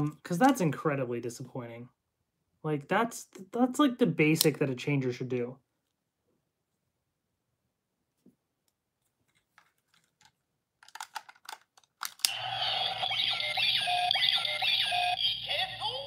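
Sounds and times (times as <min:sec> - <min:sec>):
plastic toy clicks: 0:10.8 - 0:12.4
toy electronic sound effects and music: 0:12.3 - 0:16.0.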